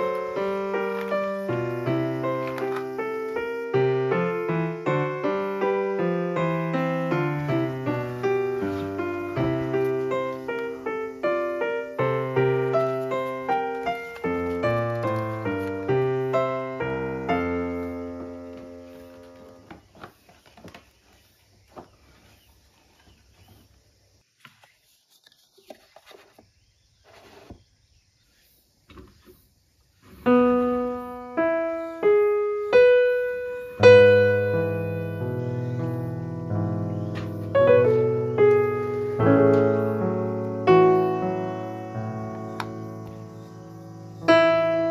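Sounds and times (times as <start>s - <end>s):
gentle piano music: 0.0s - 20.0s, 30.0s - 44.9s.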